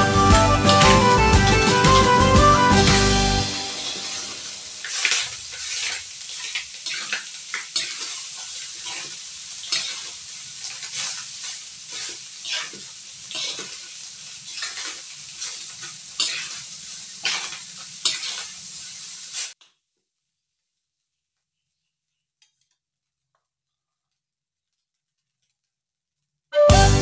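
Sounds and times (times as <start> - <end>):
frying sizzle: 0.0 - 19.6
spatula scraping rice in wok: 3.7 - 19.6.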